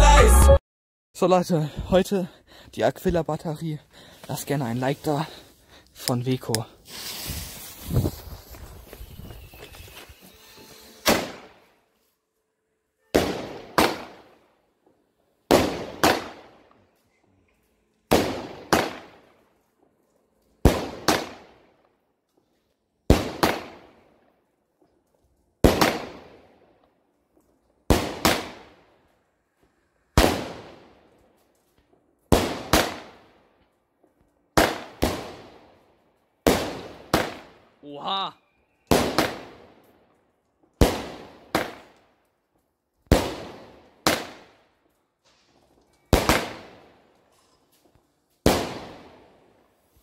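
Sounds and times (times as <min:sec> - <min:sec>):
firework shells bursting: 0:06.0 - 0:11.8, 0:45.2 - 0:49.4
firework launch bangs: 0:10.8 - 0:11.7, 0:13.1 - 0:14.3, 0:27.9 - 0:28.8, 0:30.1 - 0:31.0, 0:45.3 - 0:46.9, 0:48.4 - 0:49.2.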